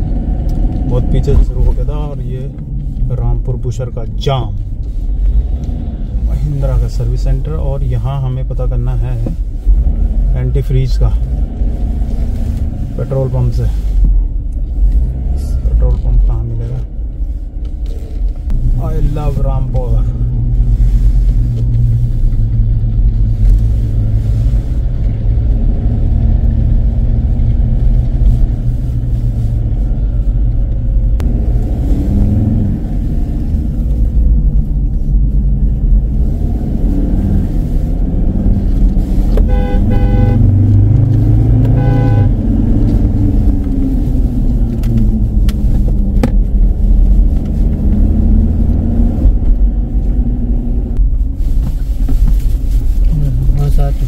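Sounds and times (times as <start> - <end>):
car interior rumble: 0.0 - 54.0
vehicle horn honking: 39.4 - 40.6, 41.5 - 42.4.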